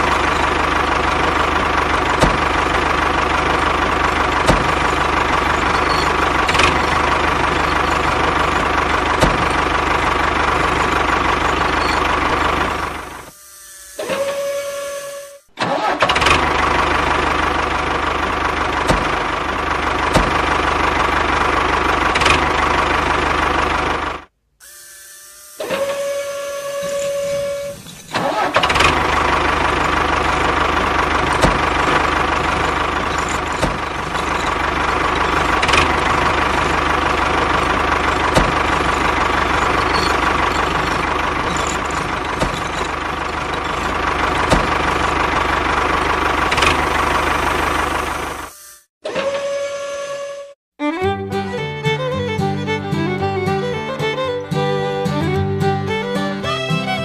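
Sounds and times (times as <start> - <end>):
motor whining: 0.0 - 16.0, 24.6 - 49.9.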